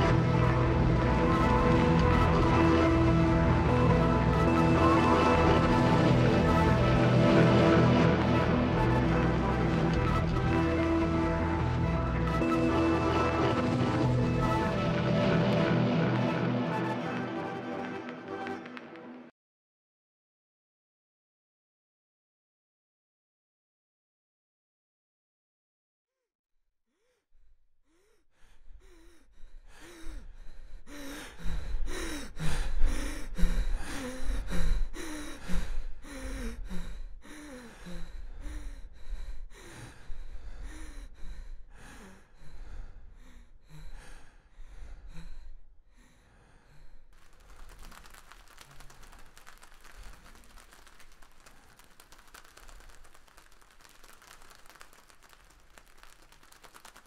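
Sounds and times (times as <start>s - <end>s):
person gasping and sighing: 26.9s - 47.0s.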